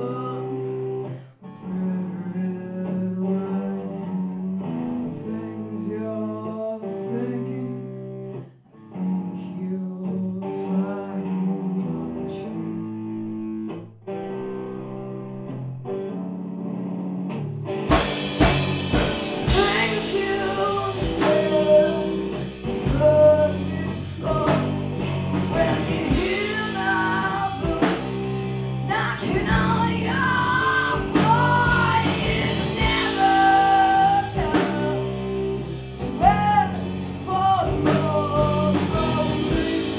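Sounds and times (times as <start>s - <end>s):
person singing: 0.0s - 13.5s, 18.0s - 39.9s
electric guitar: 0.0s - 39.9s
punk rock band playing: 15.4s - 39.9s.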